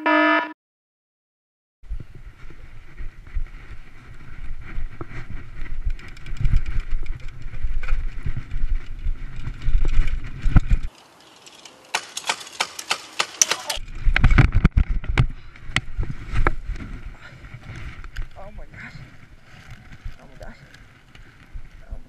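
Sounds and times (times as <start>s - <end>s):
wind buffeting microphone: 1.9s - 10.9s, 13.8s - 22.0s
bike rattling: 1.9s - 22.0s.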